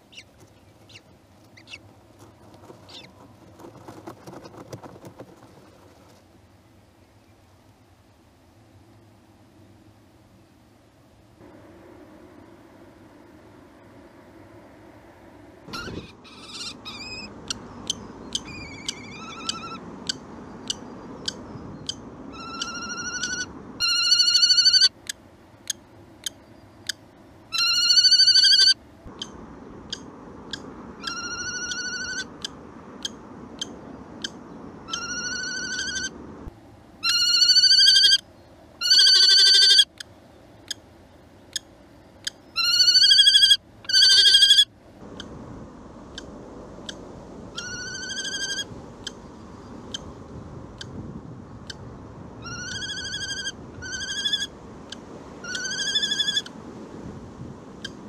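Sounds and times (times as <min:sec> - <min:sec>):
kestrel calling: 0:15.7 - 0:25.0, 0:41.5 - 0:44.7, 0:52.4 - 0:54.5.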